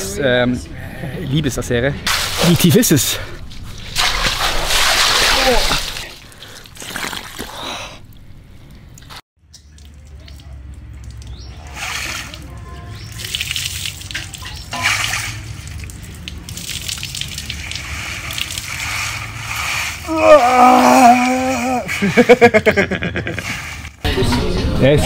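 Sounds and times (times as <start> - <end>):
water and ice cubes sloshing: 2.1 - 22.3.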